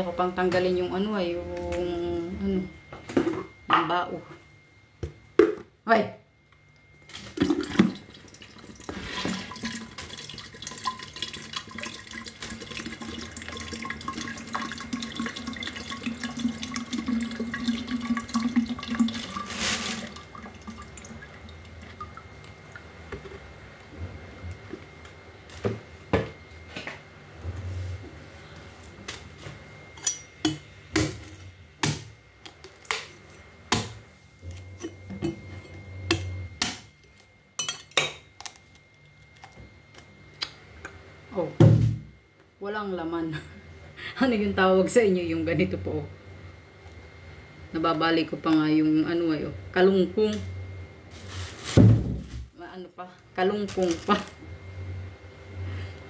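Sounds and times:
liquid trickling into a plastic pitcher: 7.2s - 23.0s.

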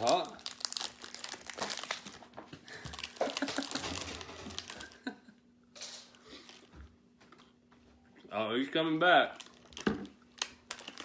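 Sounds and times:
plastic snack pouch crinkling: 0.0s - 5.1s, 9.1s - 11.0s.

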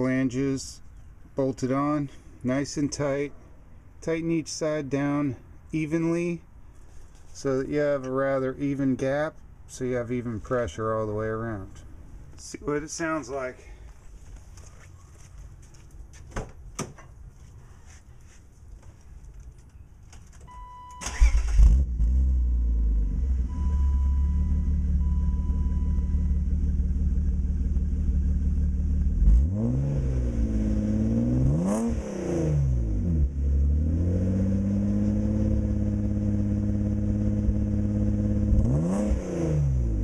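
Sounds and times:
car engine starting and revving: 21.0s - 40.0s.

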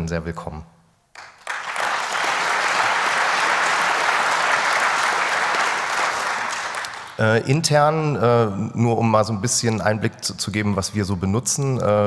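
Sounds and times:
audience applause: 1.2s - 7.3s.

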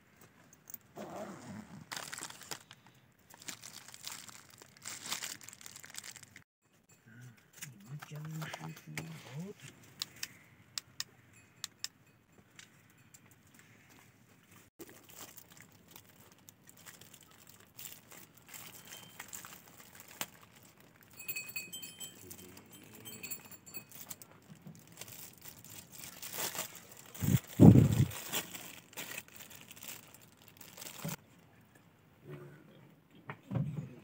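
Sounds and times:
aluminium foil crinkling: 1.9s - 6.5s, 14.8s - 21.5s, 22.1s - 31.2s.

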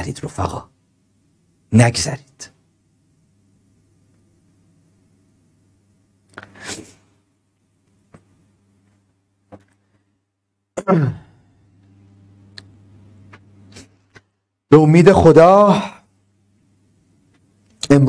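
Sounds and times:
faint low hum: 0.0s - 18.0s
man sighing: 10.8s - 11.5s.

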